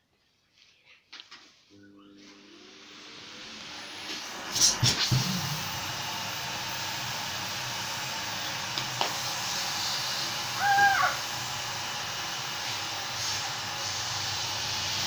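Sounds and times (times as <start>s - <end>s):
vacuum cleaner running: 1.7s - 15.0s.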